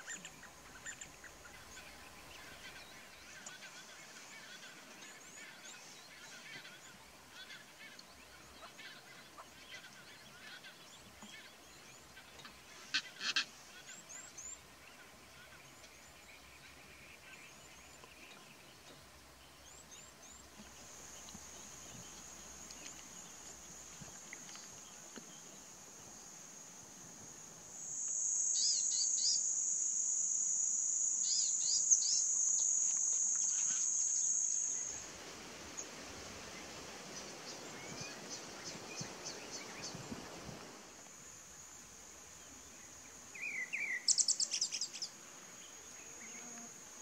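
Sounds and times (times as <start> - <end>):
insect drone: 20.3 - 47.0
bird chirps: 43.4 - 45.1.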